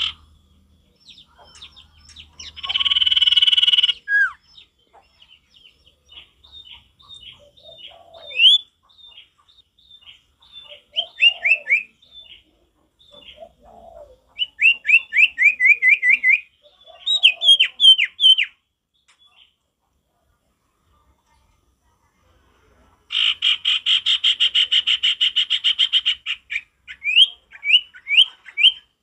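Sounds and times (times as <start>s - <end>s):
bird singing whistled notes: 0.0s - 4.7s, 6.5s - 9.2s, 9.8s - 12.4s, 14.4s - 18.6s, 26.6s - 28.9s
low raspy bird notes: 0.0s - 4.8s.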